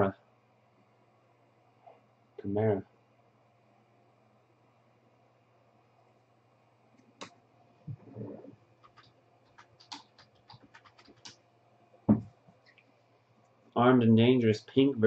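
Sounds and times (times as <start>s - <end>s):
dull thump: 12.1s - 12.3s
soft knock and rustle: 12.1s - 12.4s.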